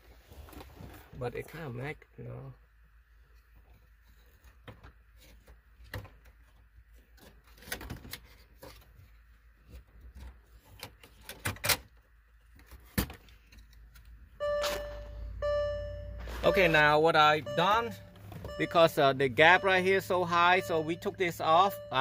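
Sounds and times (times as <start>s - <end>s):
electronic beep tone: 14.4s - 22.0s.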